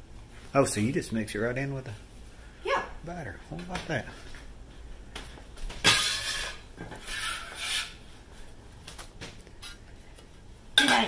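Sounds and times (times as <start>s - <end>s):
utensil scraping batter in glass bowl: 6.0s - 8.0s.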